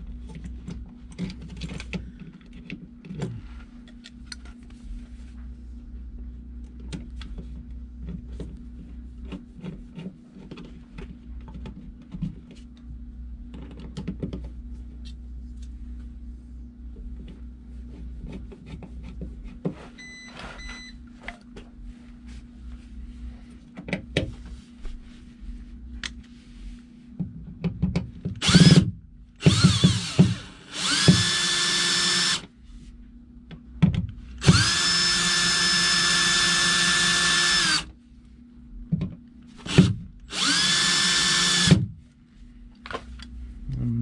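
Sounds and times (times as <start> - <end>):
cordless drill driving screws: 28.4 - 28.8, 29.4 - 32.5, 34.4 - 37.9, 39.7 - 41.8.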